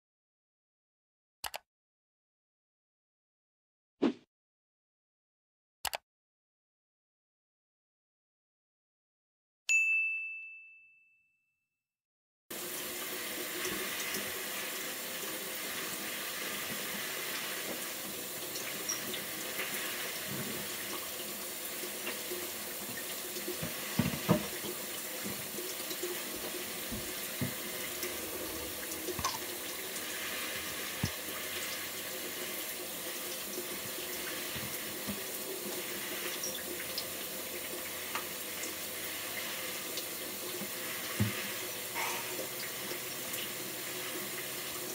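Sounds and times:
water running: 12.5 - 44.9.

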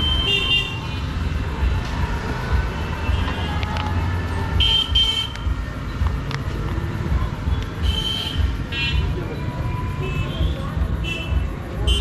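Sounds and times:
road traffic rumbling: 0.0 - 12.0.

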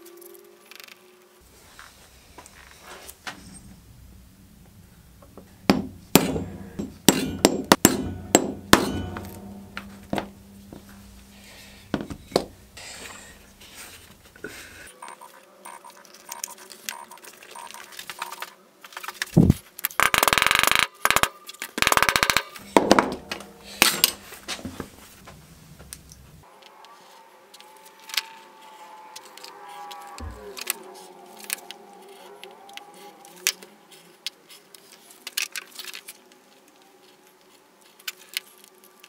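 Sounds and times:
hammer tapping metal tool: 5.3 - 12.6, 22.1 - 24.8.

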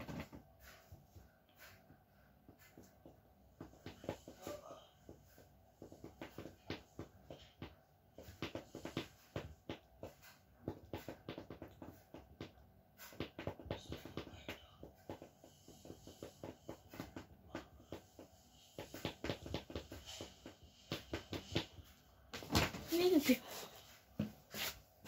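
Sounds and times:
person speaking: 22.8 - 23.8.

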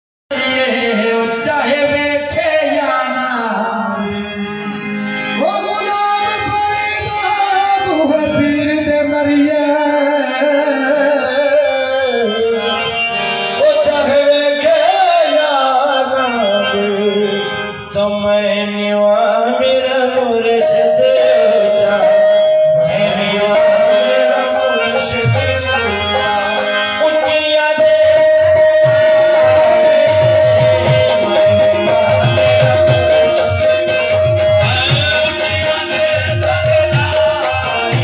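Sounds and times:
harmoniums: 0.3 - 38.0
man singing slow melody: 5.4 - 38.0
drum keeping time: 21.0 - 38.0.

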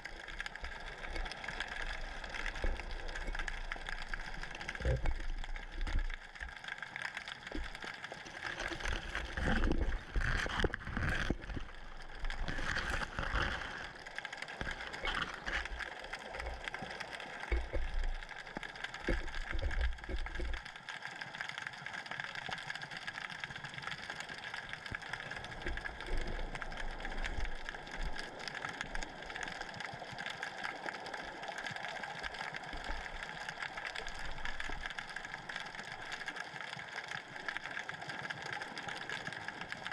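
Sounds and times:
water moving underwater: 0.0 - 39.9.

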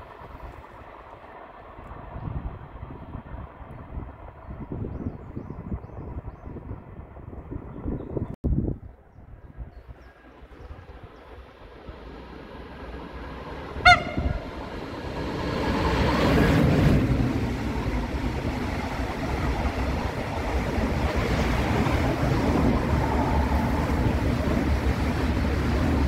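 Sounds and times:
train wheel and wind rush: 0.0 - 26.0
train horn toot: 13.8 - 14.6.

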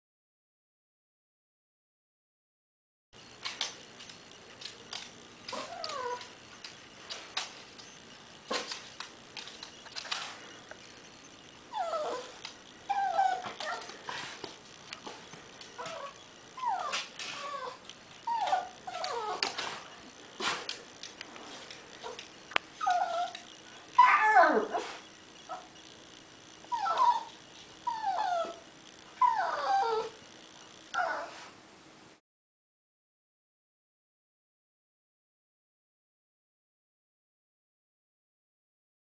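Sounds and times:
dog yipping: 5.5 - 6.3, 11.7 - 14.2, 15.8 - 19.6, 22.8 - 25.7, 26.7 - 28.6, 29.2 - 30.2, 31.0 - 31.4
small dog whining: 5.5 - 6.4, 11.7 - 14.4, 15.0 - 19.8, 22.0 - 25.8, 26.6 - 30.2, 30.9 - 31.5.

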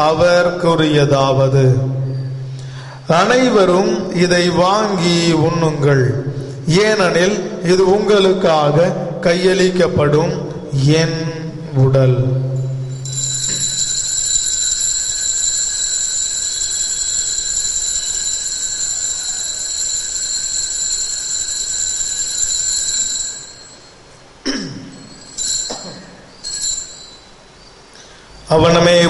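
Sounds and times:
high-pitched bell ringing: 1.8 - 7.3, 12.2 - 29.0
short bell rings: 12.4 - 28.5.

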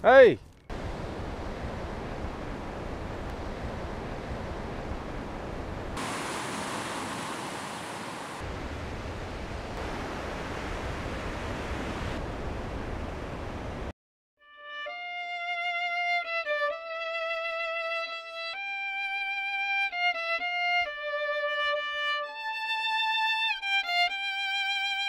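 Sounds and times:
wind: 0.0 - 13.9, 15.4 - 25.0
rushing water: 0.7 - 13.9.

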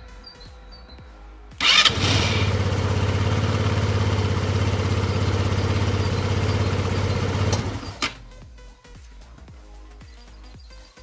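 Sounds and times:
scooter engine idling: 1.6 - 8.2.

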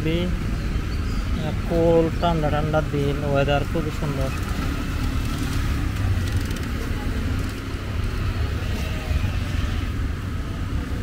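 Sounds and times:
road traffic rumble: 0.0 - 11.0
faint voices: 5.9 - 11.0.

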